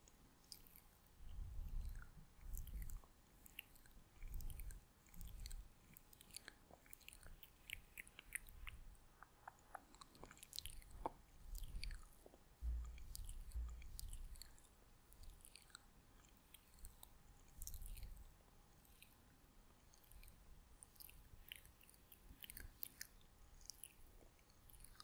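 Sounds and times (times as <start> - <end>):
wet lip and tongue clicks: 0.4 - 19.2, 19.8 - 25.0
soft low thumps: 12.6 - 14.4.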